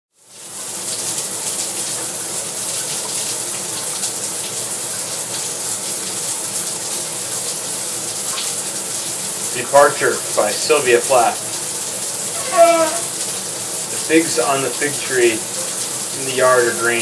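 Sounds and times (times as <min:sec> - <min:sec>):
water running: 0:08.0 - 0:17.0.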